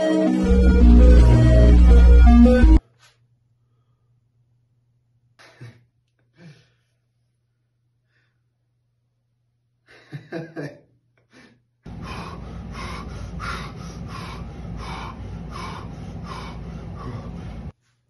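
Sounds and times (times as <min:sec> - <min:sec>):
steady low noise: 0:00.3 - 0:02.8, 0:11.9 - 0:17.7
man breathing hard: 0:06.3 - 0:07.2, 0:11.3 - 0:17.7.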